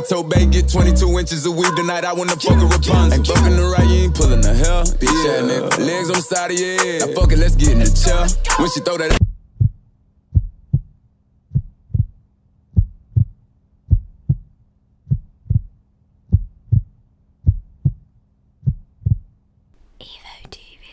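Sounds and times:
heartbeat thumps: 0:09.1 - 0:10.9, 0:11.5 - 0:14.5, 0:15.1 - 0:18.0, 0:18.6 - 0:19.3.

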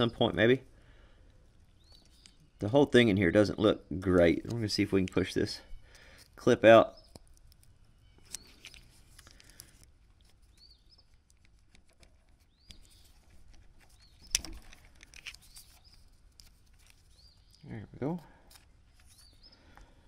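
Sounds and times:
bird chirping: 0:01.4 - 0:20.0
screwdriver clicking and scraping: 0:07.0 - 0:17.6.

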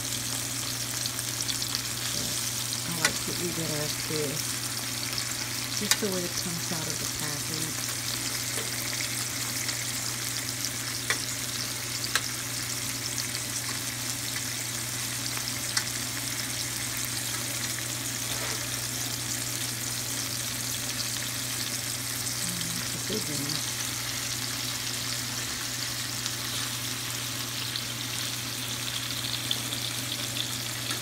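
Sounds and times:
food sizzling in a frying pan: 0:00.0 - 0:31.0.

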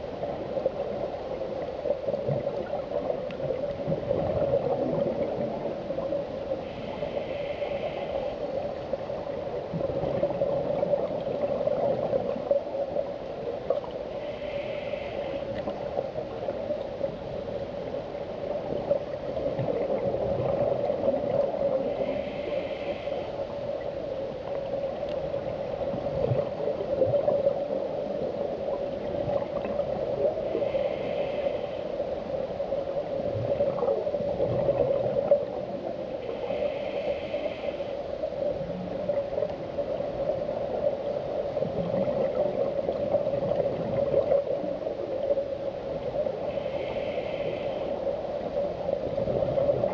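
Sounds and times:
muffled underwater hum: 0:00.0 - 0:49.9
scuba regulator hiss: 0:30.5 - 0:32.0, 0:36.3 - 0:38.0, 0:46.4 - 0:48.0.

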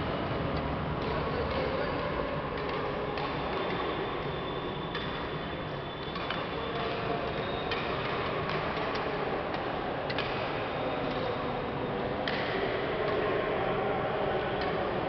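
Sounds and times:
steady background noise: 0:00.0 - 0:15.0
racket hitting shuttlecock: 0:02.5 - 0:04.0, 0:06.0 - 0:11.4, 0:12.2 - 0:13.2.

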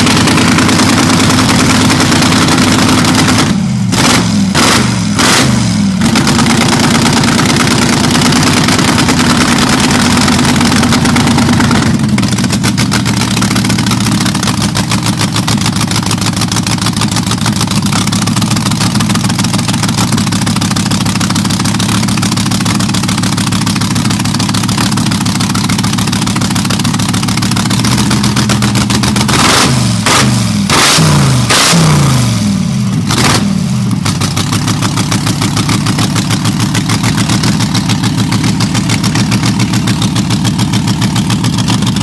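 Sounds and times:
supercharged engine revving and idling: 0:00.0 - 0:42.0.

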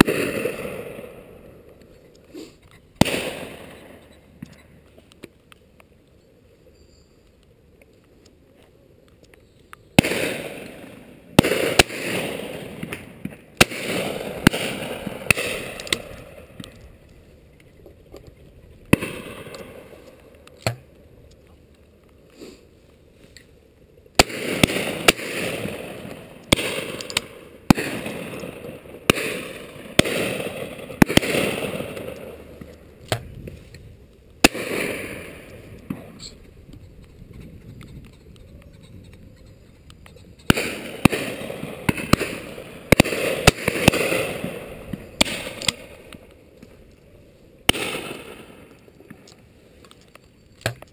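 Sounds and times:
shotgun shots echoing: 0:00.0 - 0:01.6, 0:03.0 - 0:04.1, 0:10.0 - 0:16.8, 0:18.9 - 0:20.9, 0:24.2 - 0:33.3, 0:34.4 - 0:36.4, 0:40.4 - 0:46.2, 0:47.7 - 0:48.9.

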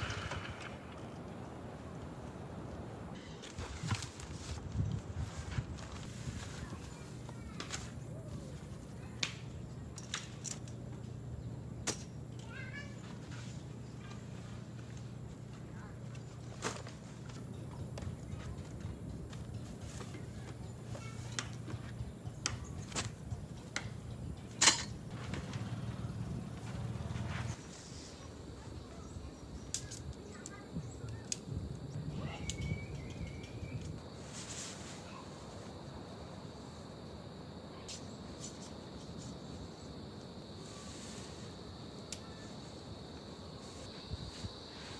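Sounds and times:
tent fabric rustling: 0:03.4 - 0:08.8, 0:34.1 - 0:35.7
tent pole sections clicking: 0:09.2 - 0:11.2, 0:29.7 - 0:31.5
folding chair frame clicks: 0:24.6 - 0:25.0.

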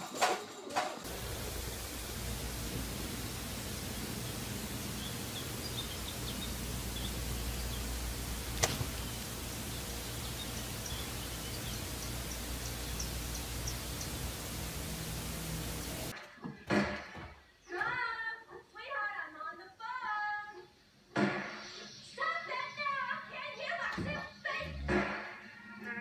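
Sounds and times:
steady hiss: 0:01.0 - 0:16.1
high bird chirps: 0:01.1 - 0:16.1.

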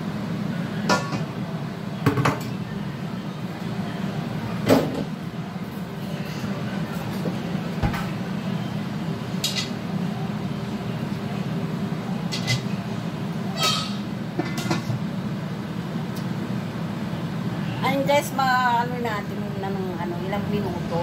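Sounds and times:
stove low rumble: 0:00.0 - 0:21.0
dishes clinking: 0:12.3 - 0:12.7, 0:13.6 - 0:15.0.

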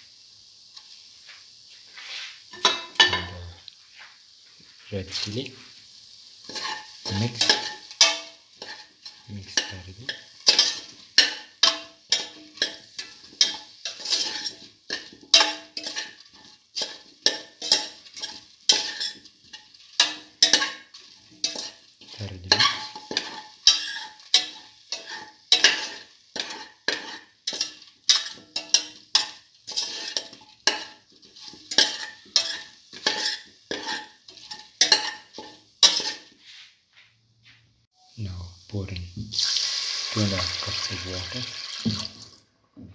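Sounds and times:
light sizzle in oil: 0:00.0 - 0:37.2, 0:37.8 - 0:42.8
metal spoon scraping a pot: 0:06.5 - 0:36.6.

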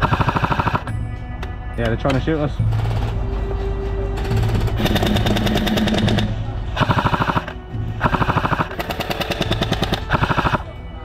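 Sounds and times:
airsoft rifles firing bursts: 0:00.0 - 0:00.9, 0:04.4 - 0:10.7.

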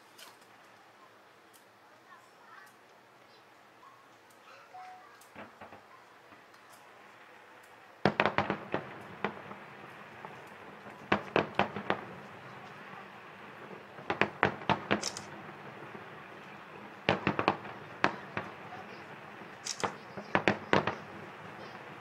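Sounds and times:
fireworks bursting: 0:04.8 - 0:22.0.

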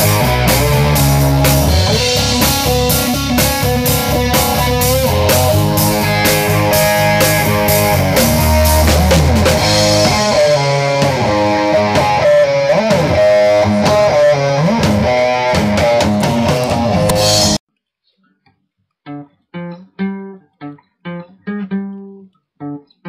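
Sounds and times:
rock music with guitar lead: 0:00.0 - 0:17.6.

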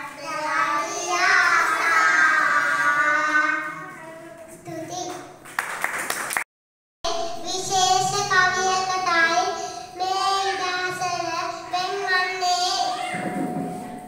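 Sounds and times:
children singing together: 0:00.0 - 0:04.0
girl speaking: 0:03.1 - 0:05.3, 0:07.1 - 0:13.2
people clapping: 0:05.0 - 0:06.5.

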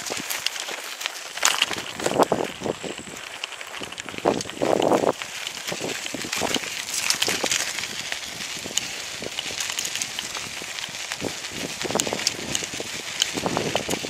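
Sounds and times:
bicycle tyres crackling on debris: 0:00.0 - 0:14.0
small rattling clicks: 0:00.0 - 0:14.0
wind on microphone: 0:01.7 - 0:14.0.

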